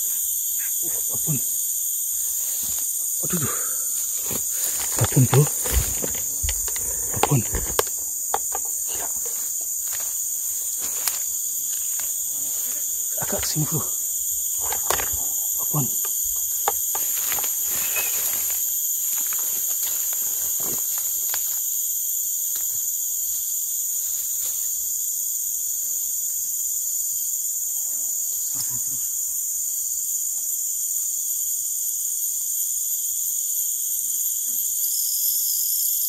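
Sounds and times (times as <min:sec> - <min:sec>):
forest insects buzzing: 0:00.0 - 0:36.0
clicks and rustles: 0:04.2 - 0:09.6, 0:14.6 - 0:21.5.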